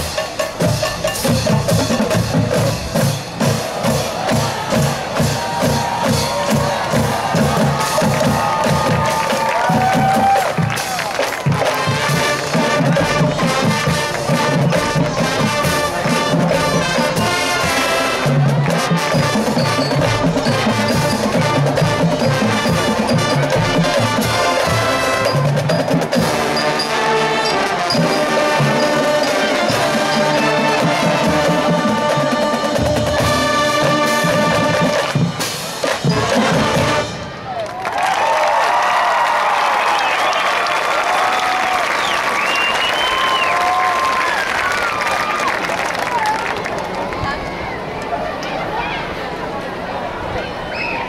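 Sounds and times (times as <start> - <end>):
mallet percussion: 0.0 - 9.7, 10.6 - 37.0
marching drums: 0.0 - 37.6
brass chords: 10.6 - 37.5.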